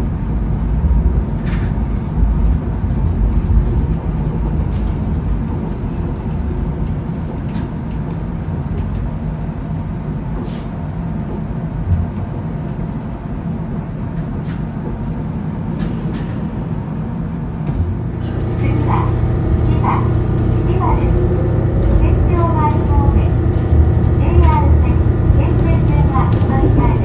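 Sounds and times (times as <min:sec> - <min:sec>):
train car low rumble: 0:00.0 - 0:27.0
deep hum: 0:17.6 - 0:27.0.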